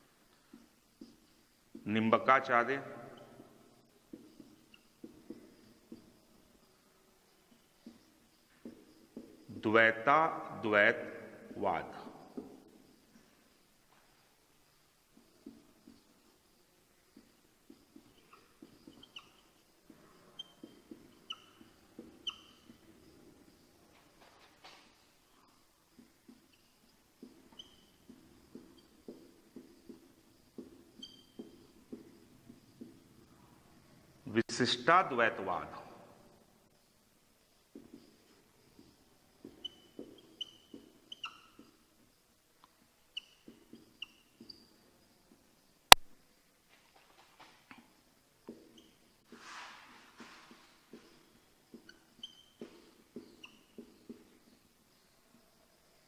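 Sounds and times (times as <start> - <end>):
scratchy writing on a board: 3.1 - 6.2, 15.1 - 23.8, 25.9 - 33.4, 37.7 - 41.9
light taps of writing on board: 4.1 - 6.1
high squeaks of writing tip: 17.7 - 23.0, 27.4 - 30.0, 30.6 - 32.2, 38.8 - 41.8, 43.1 - 44.8, 51.8 - 54.2.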